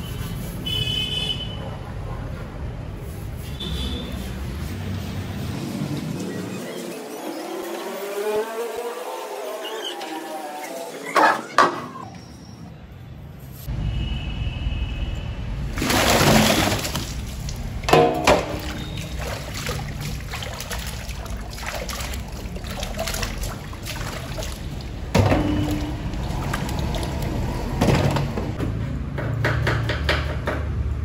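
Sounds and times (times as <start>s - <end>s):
water sloshing in a tub: 15.7s - 28.6s
sharp knocks: 17.9s - 18.8s.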